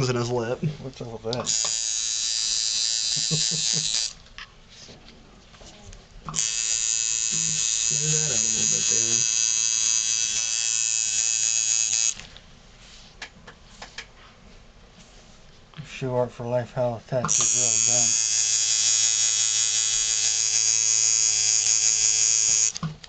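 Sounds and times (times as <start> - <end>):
tattoo machine buzzing: 1.4 - 4.2, 6.3 - 12.3, 17.3 - 22.9.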